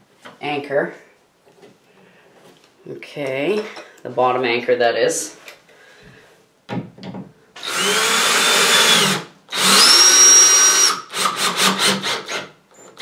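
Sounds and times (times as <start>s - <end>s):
cordless drill driving screw: 7.6s - 13.0s.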